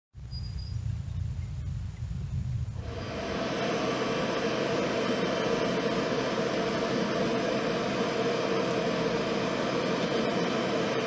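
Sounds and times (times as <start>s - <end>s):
forge blower rushing hum: 2.7s - 11.0s.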